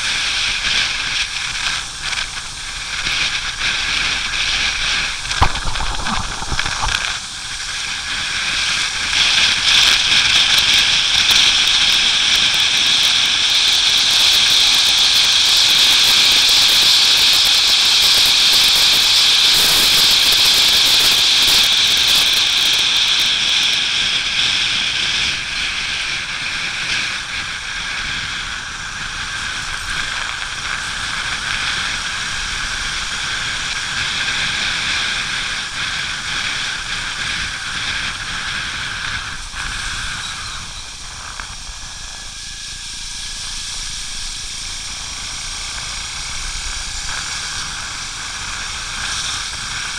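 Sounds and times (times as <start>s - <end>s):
motorcycle tyres hissing on wet road: 0.0s - 49.9s
rushing air: 1.6s - 10.2s.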